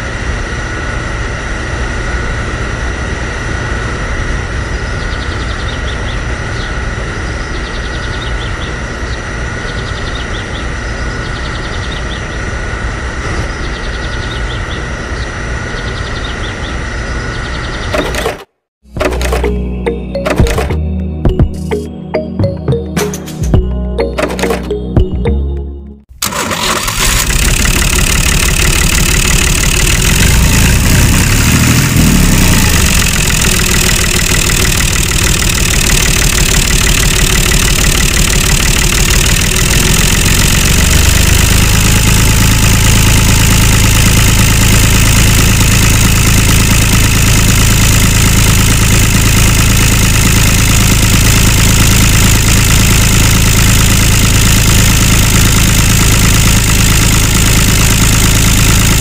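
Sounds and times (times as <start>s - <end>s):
tractor engine running: 17.9s - 59.0s.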